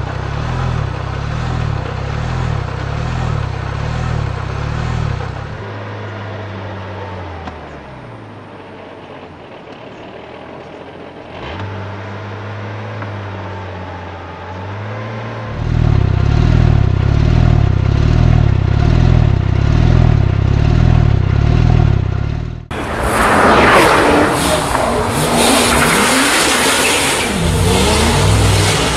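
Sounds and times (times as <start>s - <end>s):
loud engine revving: 0.0s - 6.6s, 11.2s - 28.9s
muffled car engine idling: 0.0s - 14.8s, 15.4s - 23.7s.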